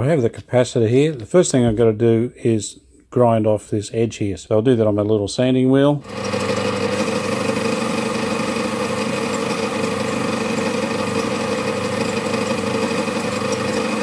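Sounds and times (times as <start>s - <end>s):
motor hum: 6.0s - 14.0s.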